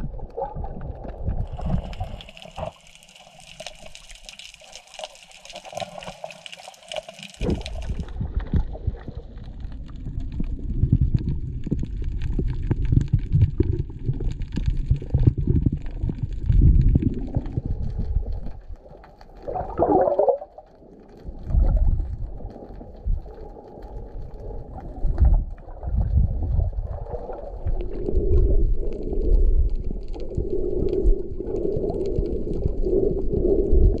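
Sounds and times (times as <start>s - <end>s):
fizzing hiss underwater: 1.3s - 10.1s.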